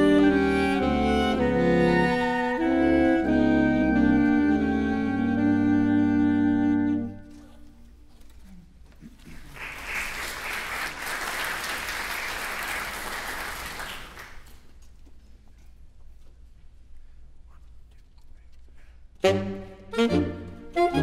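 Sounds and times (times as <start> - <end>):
saxophone quartet chord: 0.0 - 7.8, 19.2 - 21.0
audience applauding: 9.2 - 14.7.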